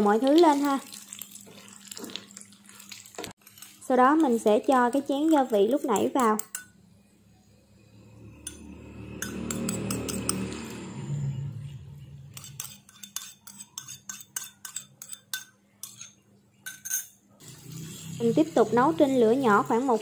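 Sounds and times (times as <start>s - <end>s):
sauce pouring into frying pan: 0.2s - 3.7s, 17.4s - 18.8s
spoon tapping ceramic bowl: 5.3s - 6.8s, 8.4s - 10.6s.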